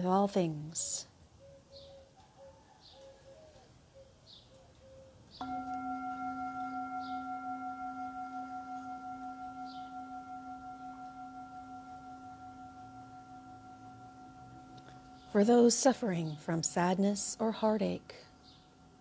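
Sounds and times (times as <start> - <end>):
singing bowl ringing: 5.4 - 19.0.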